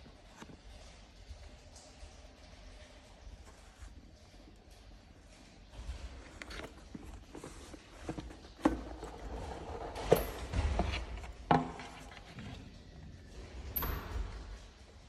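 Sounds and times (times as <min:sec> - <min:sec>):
cardboard scraping and rustling: 0:06.3 - 0:12.3.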